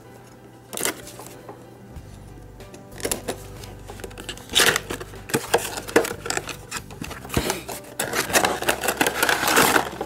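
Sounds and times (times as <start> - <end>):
packaging clicks and rustles: 0.7 - 1.4, 3.0 - 10.0
packaging crinkling: 3.0 - 10.0.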